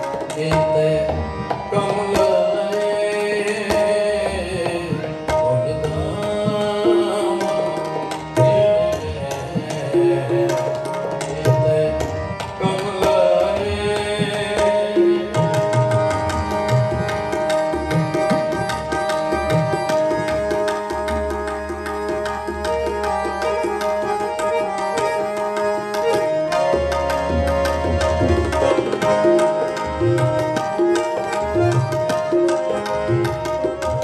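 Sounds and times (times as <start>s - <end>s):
harmoniums sustained notes: 0.0s - 34.0s.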